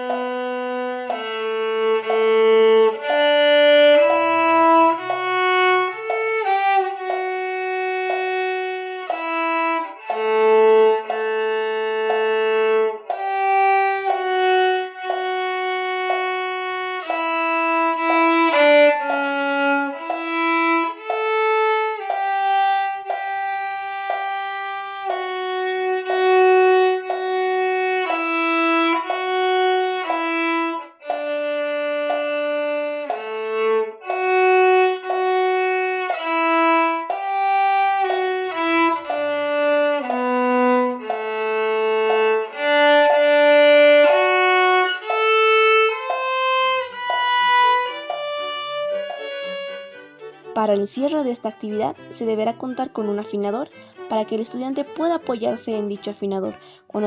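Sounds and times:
solo viola melody: 0.0s - 57.0s.

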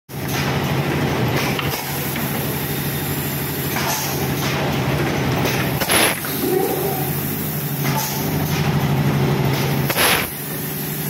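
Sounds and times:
machine humming: 0.2s - 10.6s
loud air blast: 5.7s - 8.3s, 9.6s - 11.0s
compressed air hisses: 9.8s - 11.0s.

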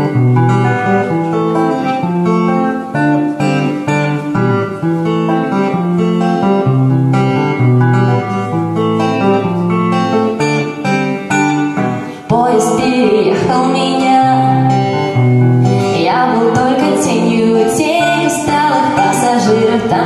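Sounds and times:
clean electric guitar picking: 0.0s - 20.0s
woman singing: 12.2s - 15.0s, 15.8s - 20.0s.

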